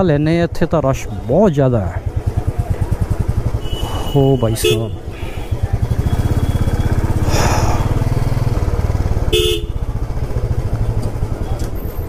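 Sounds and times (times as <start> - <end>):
motorcycle engine running: 1.2 - 12.0
vehicle horn honking: 3.5 - 6.1, 9.2 - 10.0.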